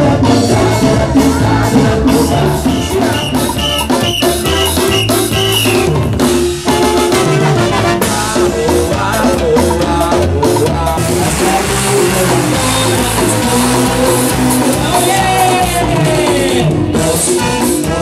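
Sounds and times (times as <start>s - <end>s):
up-tempo latin dance music: 0.0s - 18.0s.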